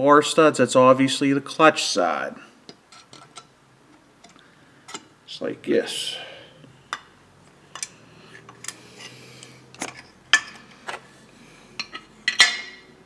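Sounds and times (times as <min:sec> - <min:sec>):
metal clanks on workbench: 0:11.8 - 0:12.9.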